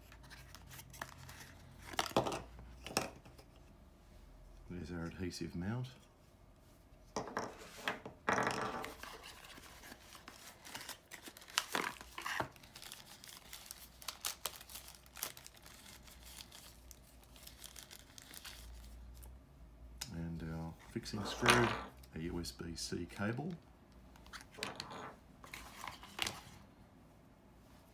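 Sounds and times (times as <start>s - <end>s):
plastic bag crinkling: 11.0s - 19.0s.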